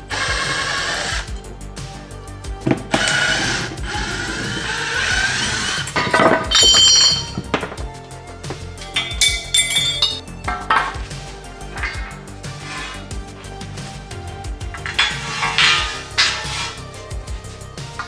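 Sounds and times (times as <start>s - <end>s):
background music: 0.0s - 18.0s
copper pipes clinking and knocking: 2.6s - 13.8s, 14.4s - 17.0s
bright ringing metal clang: 6.0s - 7.5s, 8.8s - 10.3s.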